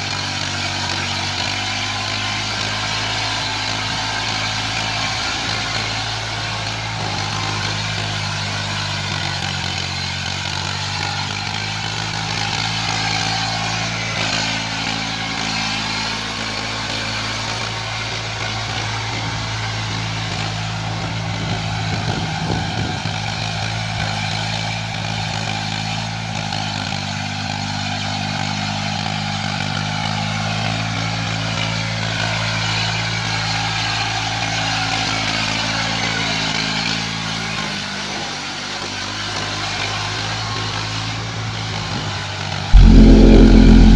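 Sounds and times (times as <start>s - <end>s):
tiller churning mud: 0.0s - 18.8s.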